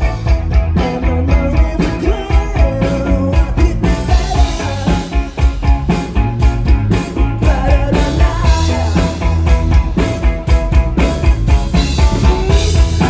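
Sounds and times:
rock band playing: 0.0 - 13.0
man singing: 0.6 - 5.5, 7.0 - 9.6, 12.0 - 13.0.

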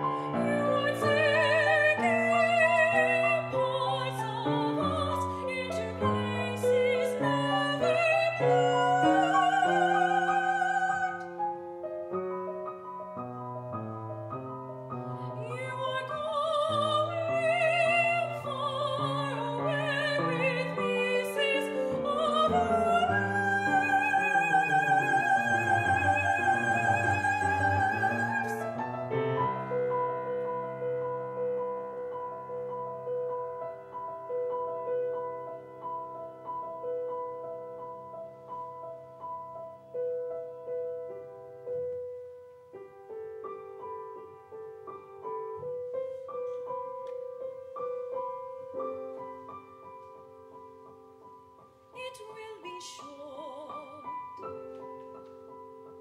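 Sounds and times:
grand piano accompaniment: 0.0 - 56.0
woman singing classical high note: 15.2 - 28.9.

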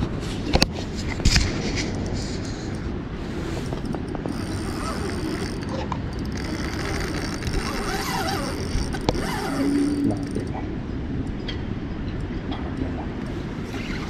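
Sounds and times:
fishing reel gear whirring: 2.7 - 10.6.

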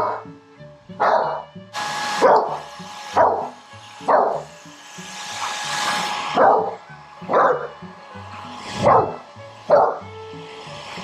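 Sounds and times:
dog barking: 0.0 - 0.2, 1.0 - 1.5, 2.2 - 2.6, 3.2 - 4.5, 6.3 - 7.7, 8.8 - 10.0
hair dryer blowing air: 1.7 - 11.0.

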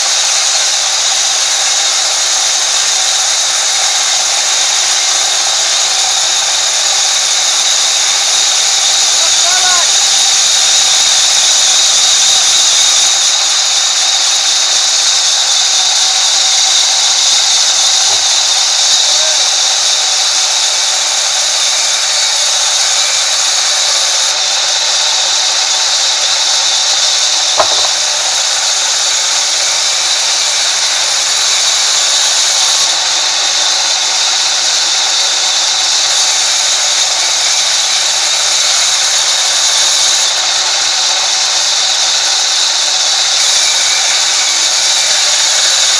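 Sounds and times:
band saw ripping through log: 21.8 - 32.6
sharp knock: 27.6 - 28.1.

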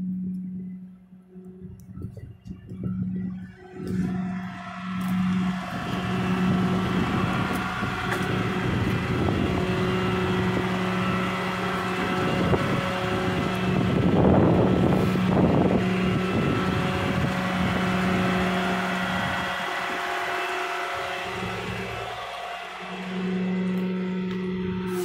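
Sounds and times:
wind on microphone: 1.6 - 20.4
diesel engine idling: 2.7 - 25.0.

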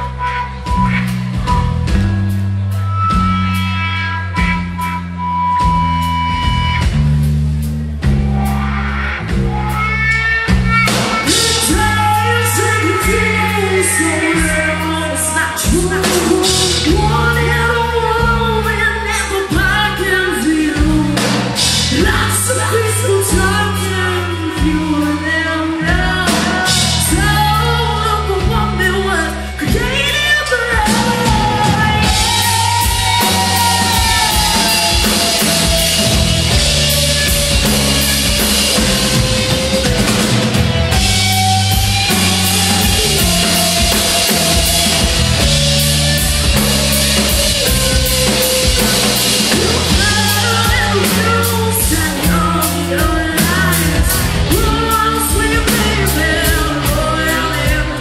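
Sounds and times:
bass guitar: 0.0 - 58.0
drum kit with cymbals: 0.0 - 58.0
electric guitar: 0.0 - 58.0
female lead vocal: 11.2 - 39.9, 41.0 - 58.0.

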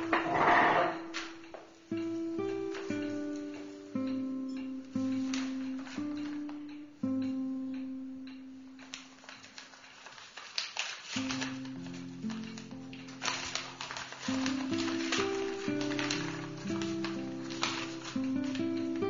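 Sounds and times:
plucked guitar notes: 0.0 - 8.9.

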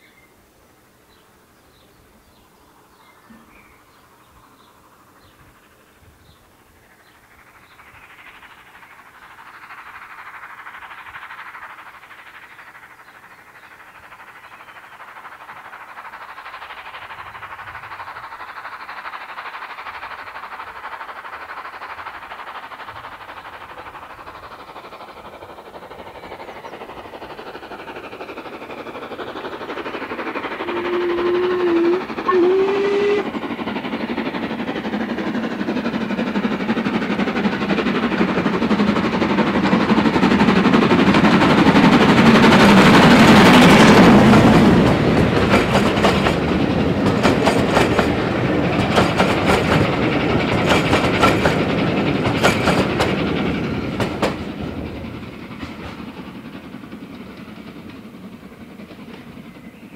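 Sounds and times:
steam locomotive exhaust: 0.0 - 59.9
low locomotive whistle: 30.6 - 33.4.

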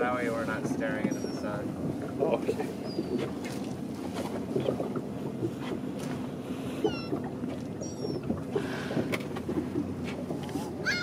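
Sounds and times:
boat engine rumble: 0.0 - 11.0
water: 0.0 - 11.0
gulls crying: 6.7 - 8.6, 10.7 - 11.0.

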